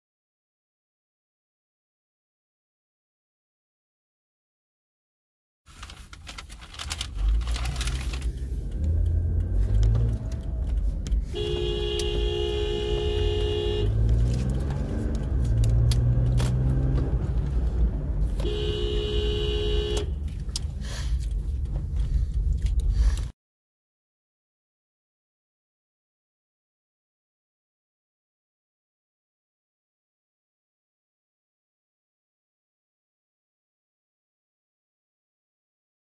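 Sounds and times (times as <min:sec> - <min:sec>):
car engine rumble: 0:05.7 - 0:23.3
car horn blasts: 0:11.3 - 0:14.9, 0:18.4 - 0:20.3.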